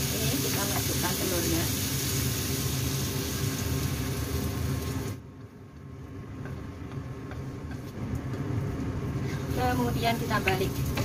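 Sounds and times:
egg sizzling in a wok: 0.0 - 5.2, 8.6 - 11.0
steady low hum: 0.0 - 11.0.

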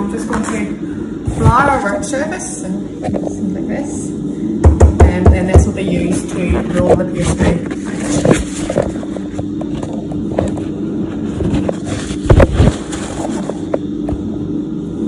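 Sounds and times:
sharp knocks: 4.6 - 5.7.

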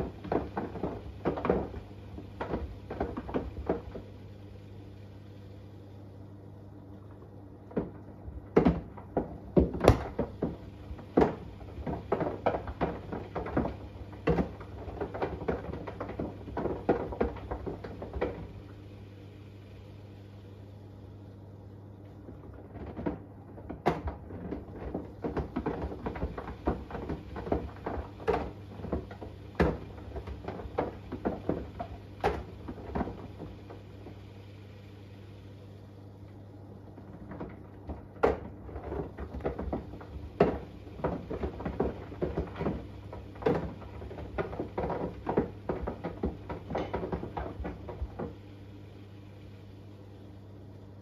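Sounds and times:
washing machine drum tumbling: 0.0 - 20.2, 21.0 - 49.6
steady low hum: 0.0 - 51.0.

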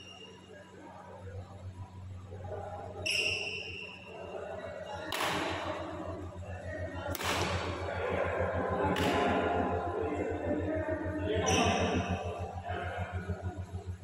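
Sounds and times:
racket hitting shuttlecock: 5.1 - 5.8, 7.1 - 7.7, 9.0 - 9.3.

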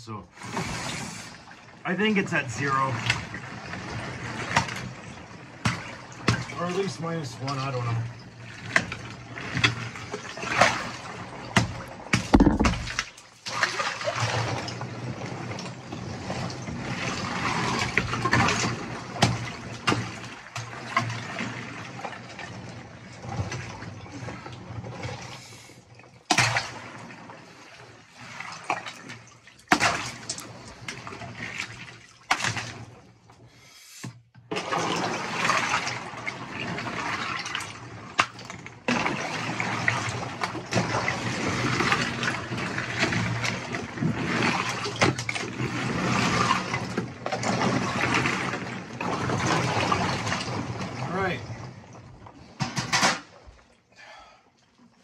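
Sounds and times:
ice and water sloshing: 0.1 - 33.6, 34.5 - 55.0
ice being knocked: 12.2 - 13.0.

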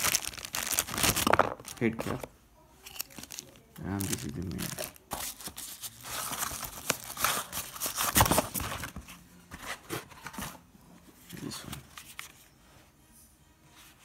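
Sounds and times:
plastic wrapping crinkling: 0.0 - 8.9.

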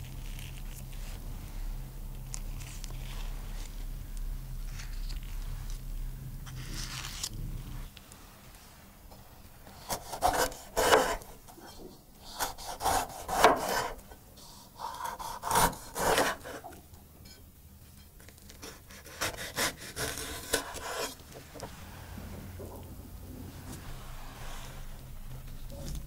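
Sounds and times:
knife slicing pepper: 9.8 - 11.3, 14.8 - 16.6, 18.6 - 21.2.

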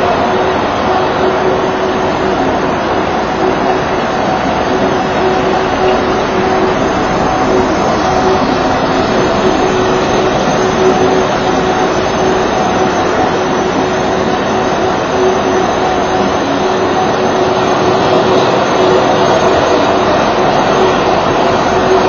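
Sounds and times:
ice resurfacer machine drone: 0.0 - 22.0.

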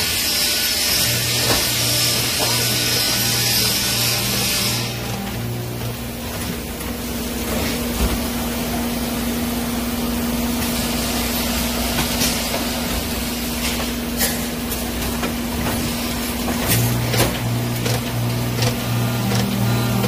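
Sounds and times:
welding machine humming: 0.0 - 20.0
sharp clicks and knocks: 16.5 - 19.6.

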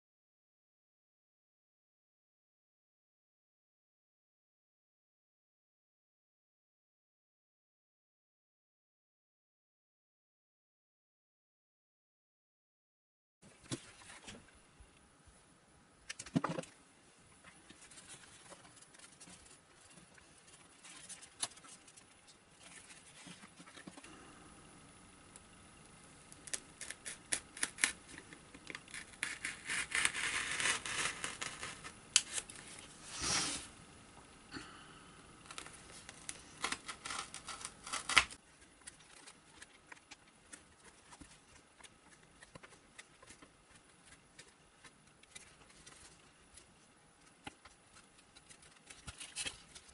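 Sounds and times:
foam rubbing and scratching: 28.9 - 32.0, 32.6 - 33.7, 35.9 - 49.9.

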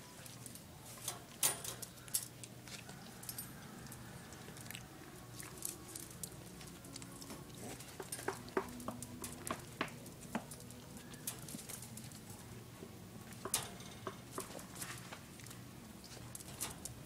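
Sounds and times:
puppy paws scratching crate: 5.4 - 12.6.

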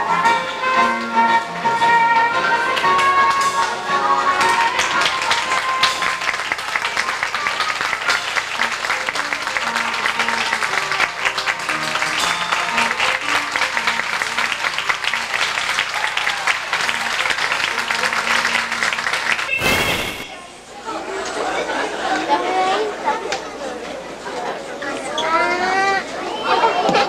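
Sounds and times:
audience applauding: 4.3 - 20.2
short burst of noise: 19.4 - 20.4.

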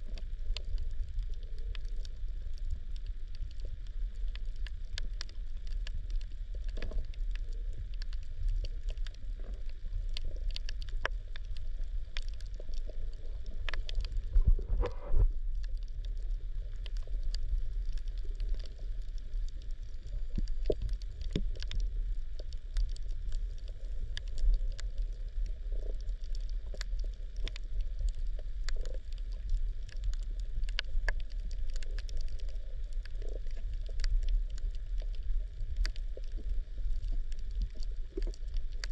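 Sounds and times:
sharp clicks and crackles: 0.0 - 38.9
underwater low rumble: 0.0 - 38.9.

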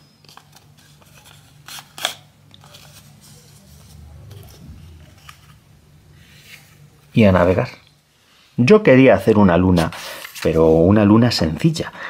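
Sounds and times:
paper rustling and crinkling: 0.2 - 5.5, 9.7 - 10.9.

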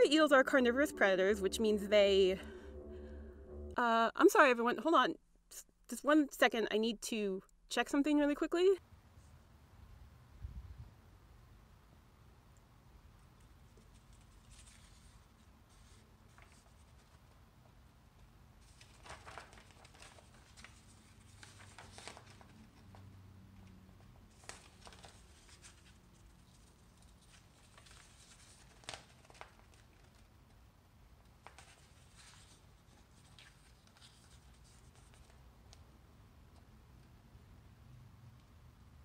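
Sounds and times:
paper pages rustling: 13.7 - 17.8, 18.6 - 30.5, 31.3 - 35.8.

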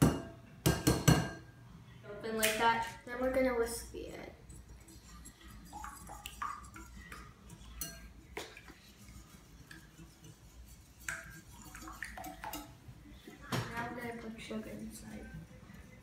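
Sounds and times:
whisk clinking against ceramic bowl: 4.5 - 12.8.

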